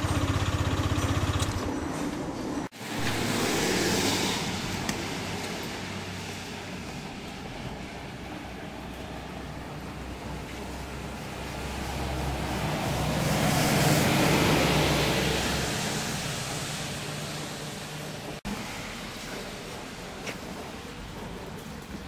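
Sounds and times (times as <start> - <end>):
vehicle passing by: 2.8 - 19.0.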